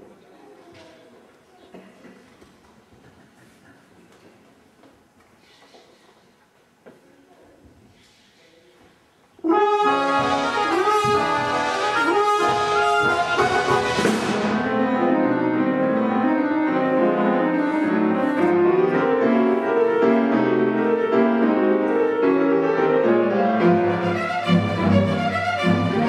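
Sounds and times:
orchestra and piano playing: 0:09.4 - 0:26.0.

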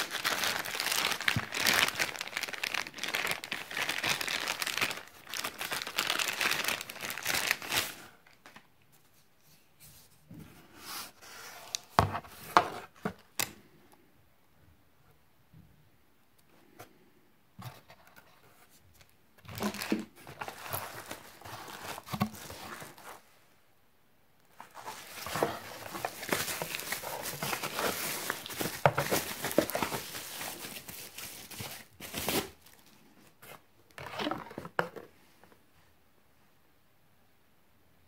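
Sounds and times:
plastic wrapping crinkling: 0:00.0 - 0:08.6, 0:19.5 - 0:23.2, 0:24.5 - 0:33.0.

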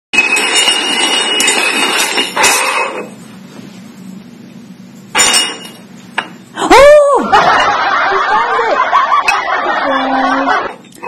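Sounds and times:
metal cups scraping on table: 0:00.2 - 0:03.2.

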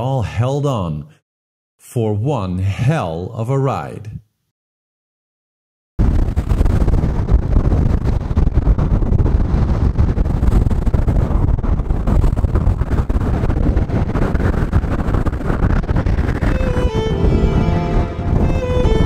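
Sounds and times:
wind buffeting microphone: 0:06.0 - 0:19.0.

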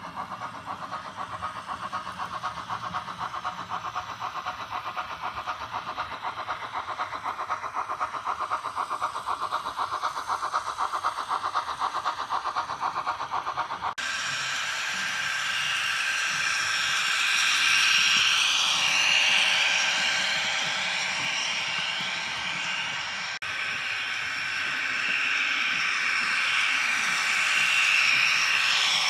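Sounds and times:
model train clattering on track: 0:00.0 - 0:29.0
model train hissing running noise: 0:00.0 - 0:29.0.

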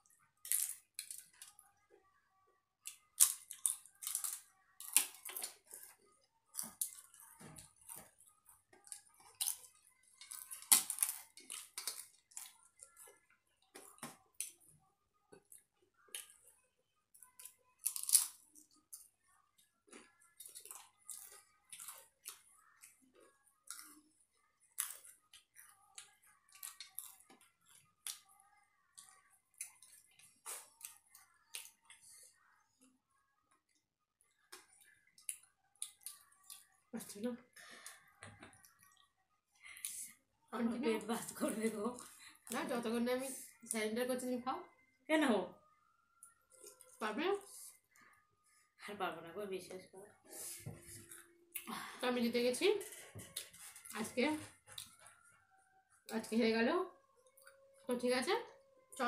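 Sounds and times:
crunching fried snacks: 0:02.9 - 0:05.9, 0:08.8 - 0:14.6, 0:17.3 - 0:19.1, 0:24.7 - 0:28.4.

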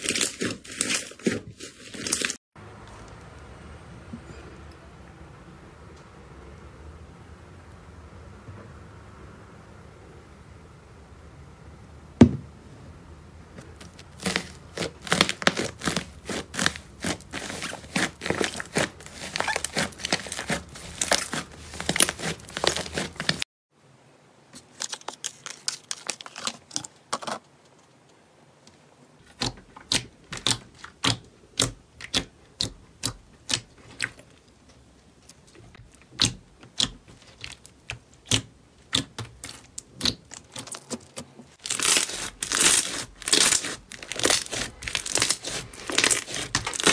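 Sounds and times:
slime crinkling and crackling: 0:00.0 - 0:02.4, 0:13.6 - 0:23.4, 0:24.6 - 0:27.4, 0:29.2 - 0:34.6, 0:35.2 - 0:46.9.

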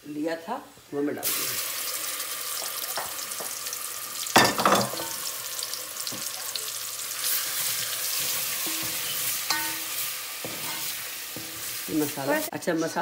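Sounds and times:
hot oil sizzling in a pan: 0:00.8 - 0:13.0.

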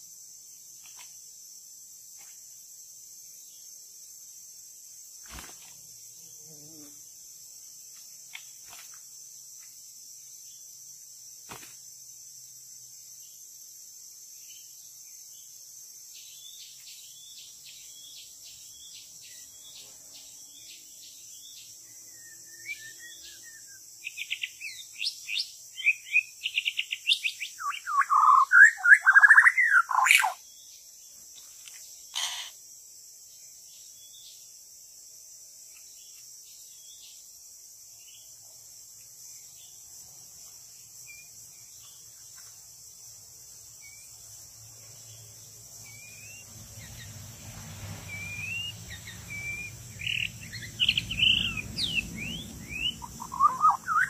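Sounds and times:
high buzz of insects: 0:00.0 - 0:54.0
bird song: 0:14.2 - 0:32.6, 0:33.2 - 0:34.6, 0:35.6 - 0:54.0
faint bird chirps: 0:16.2 - 0:32.6, 0:43.8 - 0:44.2, 0:45.0 - 0:47.3, 0:48.0 - 0:54.0.

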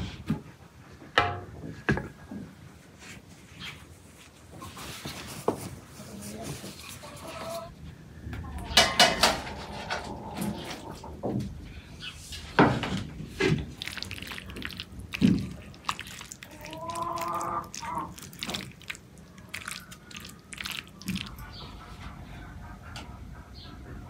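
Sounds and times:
wooden spoon stirring wet food: 0:13.0 - 0:22.0.

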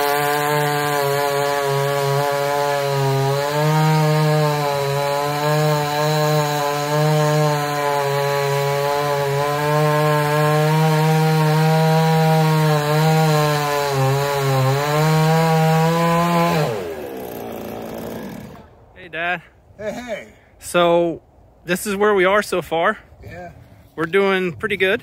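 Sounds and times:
chainsaw cutting a log: 0:00.0 - 0:18.8.

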